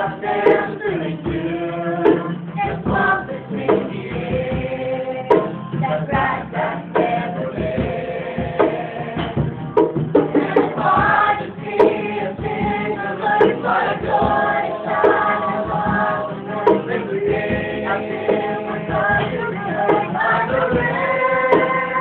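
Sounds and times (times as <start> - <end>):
man and woman singing: 0.0 - 9.6, 10.2 - 22.0
music: 0.0 - 22.0.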